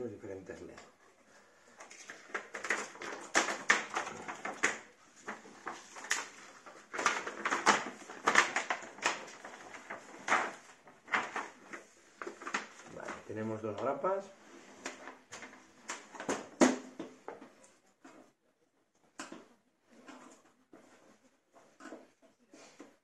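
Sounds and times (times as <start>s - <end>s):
plastic sheet crackling and rustling: 0.4s - 17.6s.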